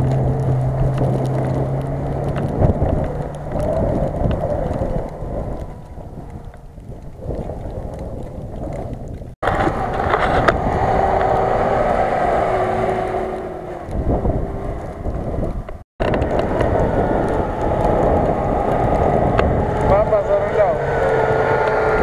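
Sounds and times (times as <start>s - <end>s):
wind on microphone: 0.0s - 22.0s
engine revving hard: 9.5s - 14.9s, 16.9s - 22.0s.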